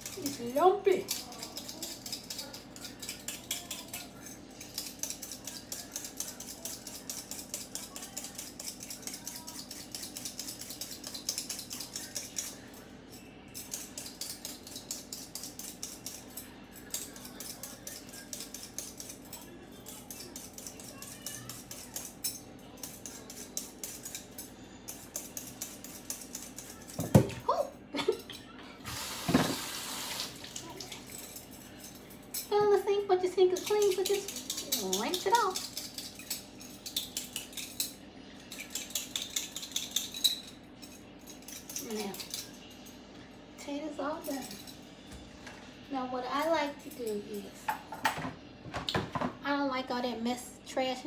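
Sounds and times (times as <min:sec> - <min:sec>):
peeler scraping potato skin: 0:00.0 - 0:12.6.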